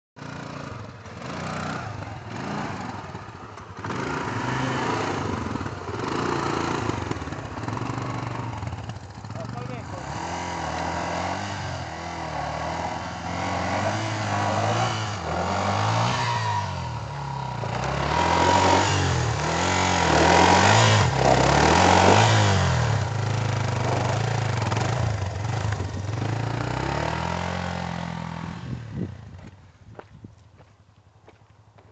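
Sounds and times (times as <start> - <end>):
dirt bike engine revving: 0.2 - 29.2
rear wheel spinning in loose dirt: 11.8 - 27.6.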